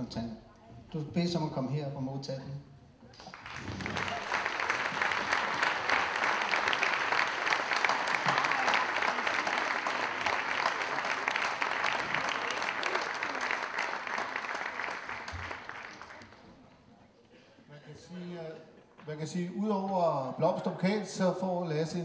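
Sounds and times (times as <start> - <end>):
audience applauding: 3.2 - 16.6.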